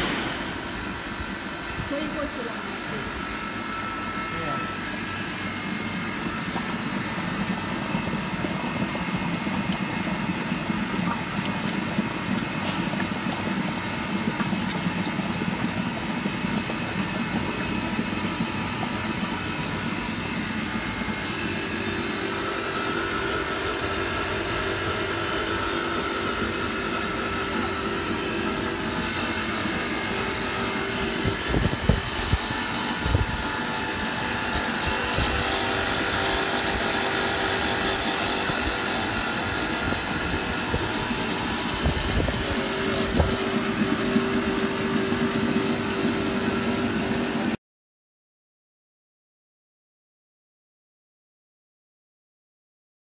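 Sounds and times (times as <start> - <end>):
higher steady hum: 0.0 - 14.6.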